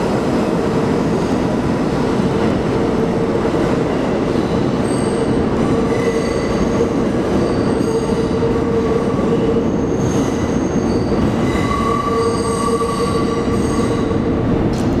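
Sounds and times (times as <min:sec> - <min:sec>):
subway train rumbling: 0:00.0 - 0:15.0
high wheel squeal: 0:09.6 - 0:14.1.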